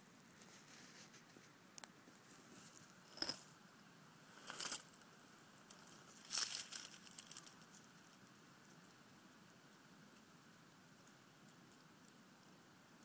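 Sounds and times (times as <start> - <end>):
faint crackles: 0.0 - 13.0
dry rustling crinkles: 4.4 - 8.3.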